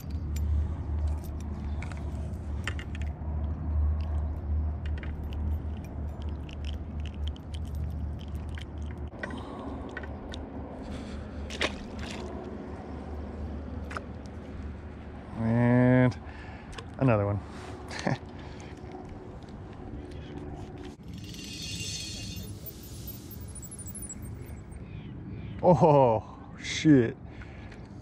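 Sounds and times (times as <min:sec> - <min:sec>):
small metallic clinks: 0:00.0 - 0:02.1, 0:04.8 - 0:08.6, 0:21.0 - 0:24.7.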